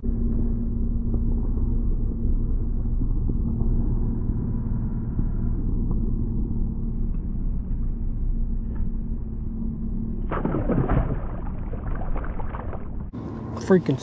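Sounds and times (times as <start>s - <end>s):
steady low hum: 0.0s - 14.0s
rough rushing noise: 10.3s - 13.1s.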